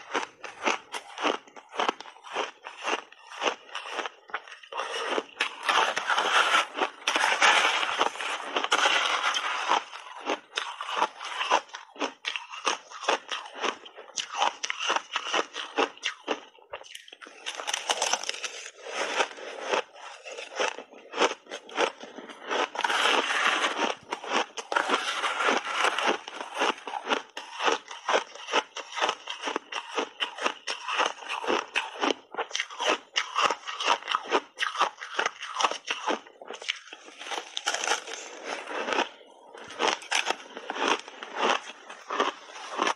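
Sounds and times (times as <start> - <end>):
ice being chewed: 0.0 - 42.9
sharp ice cracks: 17.3 - 18.7, 36.8 - 38.3.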